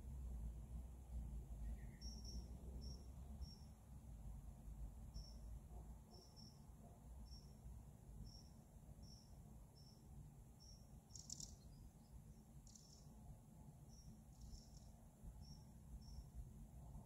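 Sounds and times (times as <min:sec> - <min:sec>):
low steady rumble: 0:00.0 - 0:17.0
bird chirping: 0:01.6 - 0:03.7, 0:05.1 - 0:05.5, 0:06.1 - 0:07.6, 0:08.2 - 0:13.2, 0:13.9 - 0:16.4
small bird calling: 0:01.6 - 0:03.7, 0:10.6 - 0:13.1, 0:13.9 - 0:16.3.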